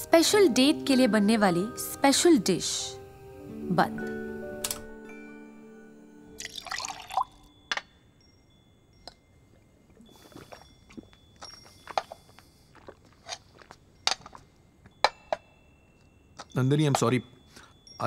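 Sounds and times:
glass and ceramic bowls clinking: 6.4 - 18.0
person drinking water: 9.9 - 13.8.

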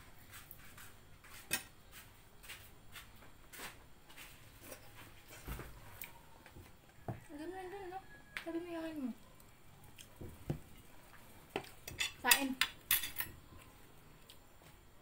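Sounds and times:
cutlery clicking on plates: 11.6 - 13.4.

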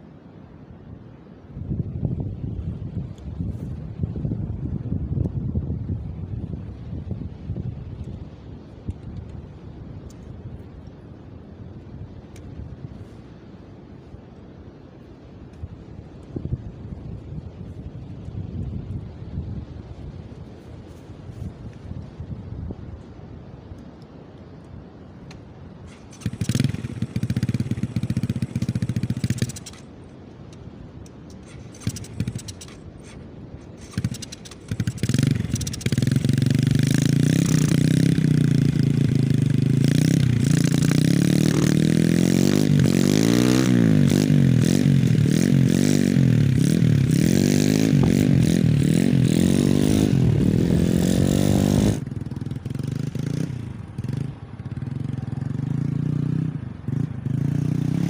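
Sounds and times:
trail motorcycle engine revving: 25.9 - 29.9, 31.3 - 58.0.

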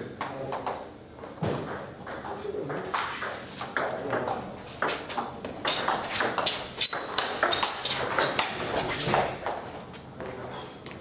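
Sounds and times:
table tennis ball hits: 1.4 - 9.6.

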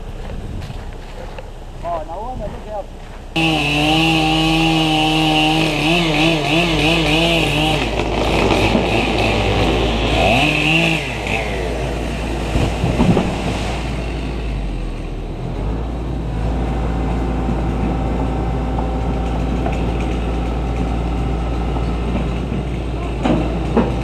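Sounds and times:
excavator diesel engine: 0.0 - 24.0
chainsaw running: 3.0 - 14.7
tree trunk cracking: 4.0 - 14.0.

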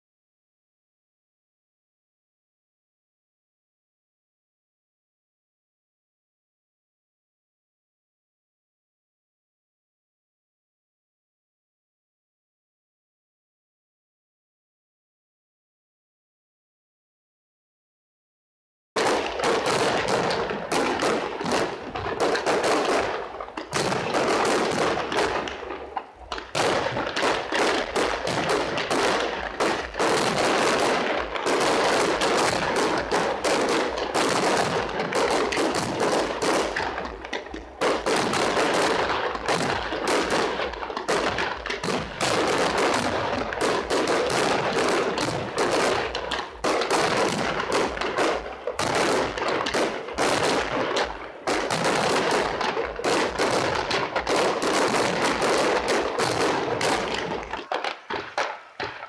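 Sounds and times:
fireworks bangs and crackling: 19.0 - 59.0.

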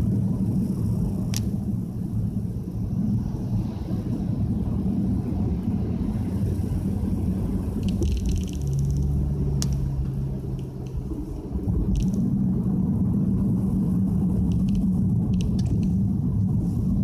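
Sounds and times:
tyres and engine rumble: 0.0 - 17.0.

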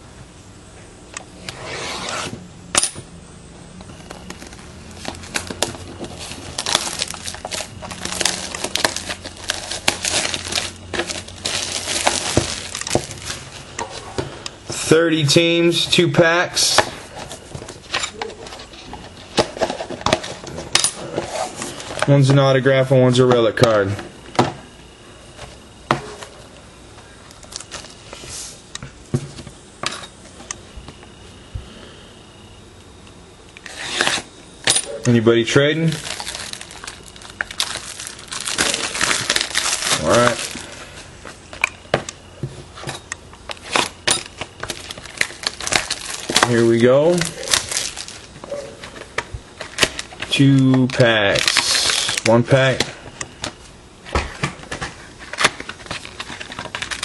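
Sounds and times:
card packs clicking and tapping: 3.8 - 14.6, 35.8 - 40.8, 43.5 - 53.6, 54.4 - 57.0
plastic shrink-wrap tearing and crinkling: 4.0 - 13.6, 35.8 - 40.8, 43.5 - 49.0, 49.6 - 52.4, 55.3 - 57.0.

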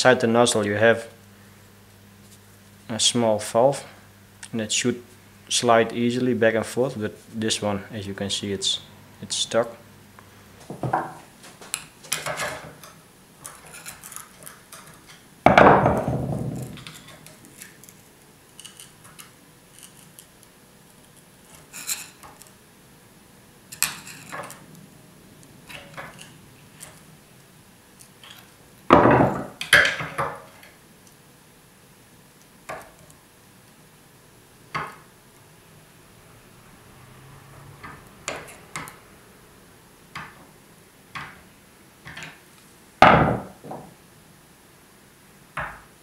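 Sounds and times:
loud metal knocks: 15.5 - 16.8, 28.9 - 30.2, 43.0 - 43.9.

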